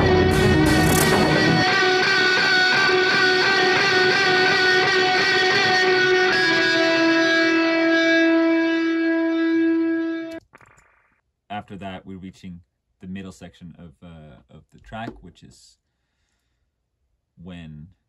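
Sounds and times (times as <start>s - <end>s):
electric guitar sustained notes: 0.0s - 10.4s.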